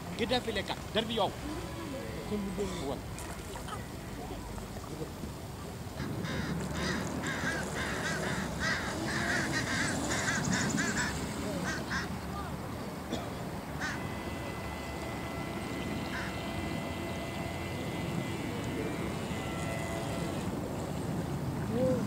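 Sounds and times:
duck quacking: 6.0 - 12.1, 13.8 - 14.4.

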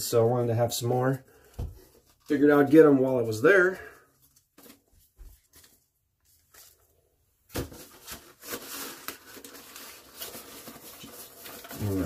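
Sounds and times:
rustling: 7.7 - 12.0.

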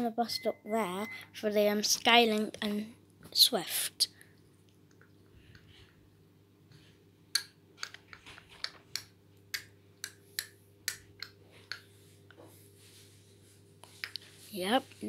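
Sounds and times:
faint steady hum: 0.0 - 15.0
toy pieces clicking and tapping: 7.3 - 11.8.

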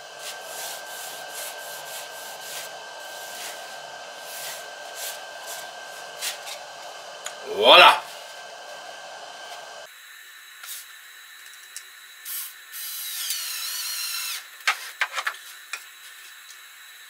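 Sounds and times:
power drill running: 0.0 - 9.9, 12.8 - 14.5.

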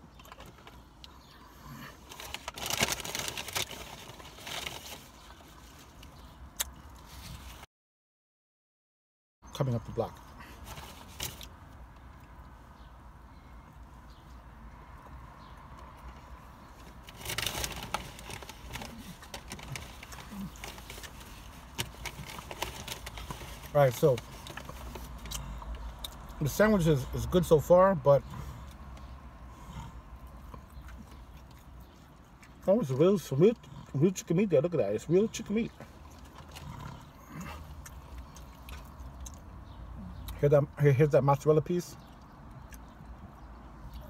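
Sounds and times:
chewing food close-up: 14.1 - 26.4, 28.2 - 40.4, 42.0 - 44.0
person chewing food: 35.9 - 39.6.

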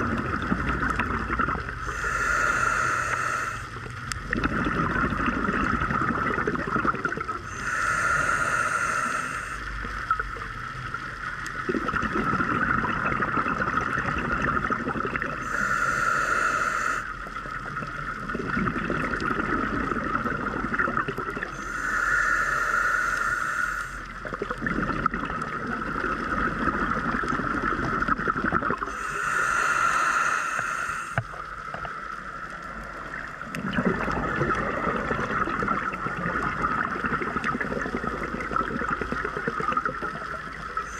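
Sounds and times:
exhaled air bubbling: 0.0 - 40.9
regulator inhale hiss: 1.8 - 3.9, 7.5 - 10.0, 15.4 - 17.4, 21.5 - 24.2, 28.9 - 33.2.

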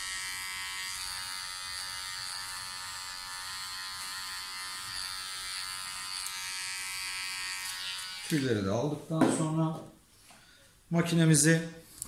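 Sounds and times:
electric hair clipper buzzing: 0.0 - 8.6.

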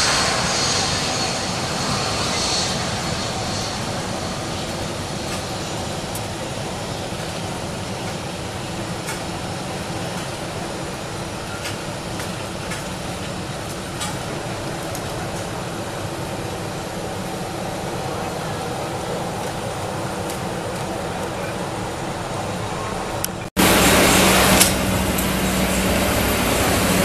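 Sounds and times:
excavator running: 21.8 - 27.0.

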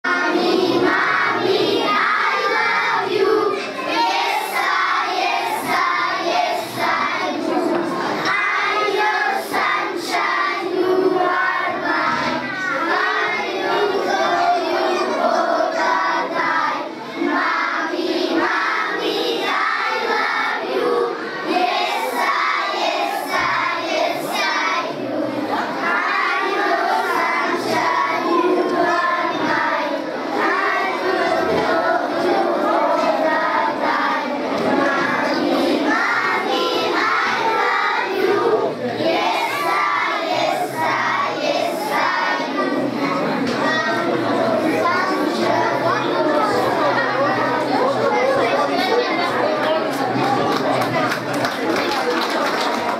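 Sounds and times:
children singing together: 0.0 - 50.8.

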